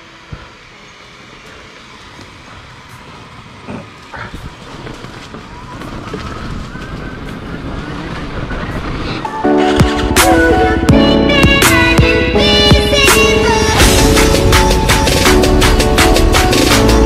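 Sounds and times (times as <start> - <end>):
music: 9.2 - 17.0.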